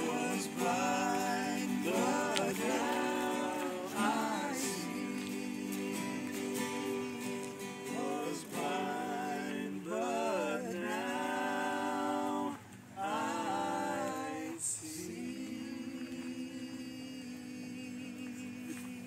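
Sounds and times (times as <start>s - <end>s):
acoustic guitar strumming: 0.0s - 14.5s
people singing together: 0.0s - 19.0s.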